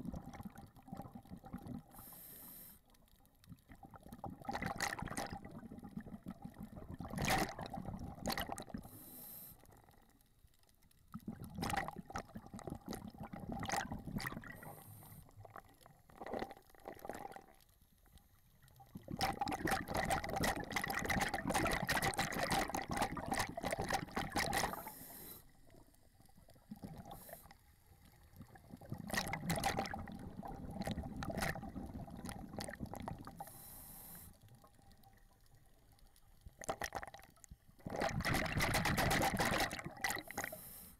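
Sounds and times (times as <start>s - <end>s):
regulator bubbling underwater: 0.0s - 1.9s, 3.6s - 8.9s, 11.1s - 14.8s, 15.4s - 17.6s, 18.8s - 25.0s, 28.3s - 33.5s, 36.6s - 40.5s.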